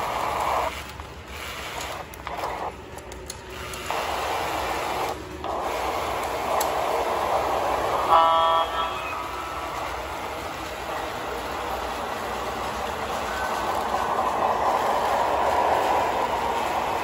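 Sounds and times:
model train motor whirring: 0.0s - 17.0s
model train horn: 8.0s - 9.4s.

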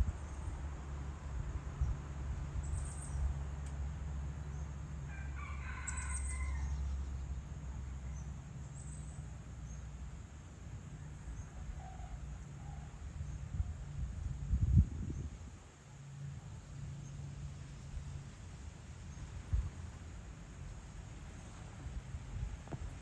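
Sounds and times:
low steady rumble: 0.0s - 23.0s
rooster crowing: 5.0s - 7.0s.

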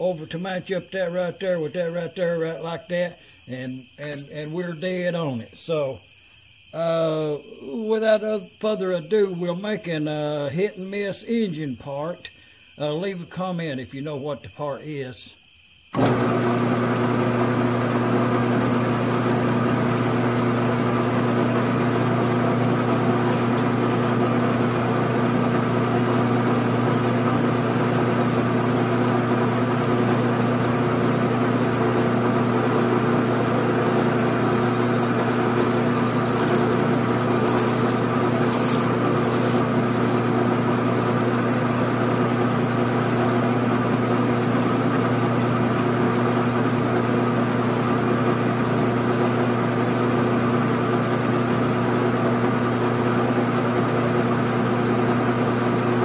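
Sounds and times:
lathe motor and gear hum: 16.0s - 56.0s
high-pitched tool cutting brass: 33.4s - 40.2s.

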